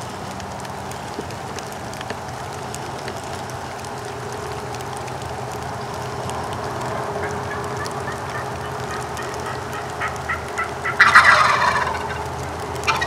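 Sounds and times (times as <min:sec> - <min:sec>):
turkey gobbling: 0:06.6 - 0:13.0.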